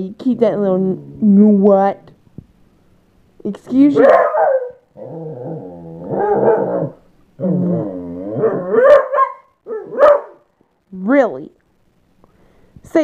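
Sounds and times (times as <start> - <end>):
dog growling and grumbling: 0.5 - 1.6, 4.6 - 8.9.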